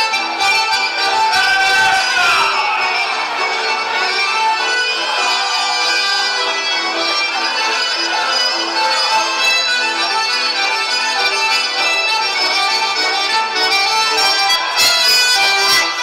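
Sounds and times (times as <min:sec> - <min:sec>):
accordion dance music: 0:00.0 - 0:16.0
guitar accompaniment: 0:00.0 - 0:16.0.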